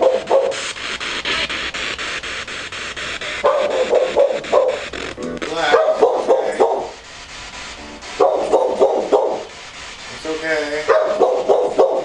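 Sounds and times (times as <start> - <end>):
dog barking: 0.0 - 0.6, 3.4 - 4.8, 5.7 - 7.0, 8.2 - 9.5, 10.8 - 12.0
chopped radio static: 0.0 - 12.0.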